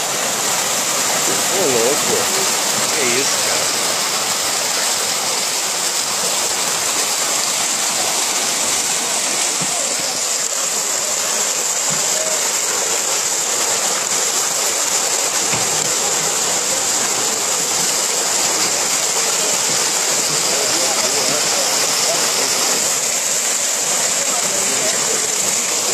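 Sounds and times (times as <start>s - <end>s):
water churning and splashing: 0.0s - 25.9s.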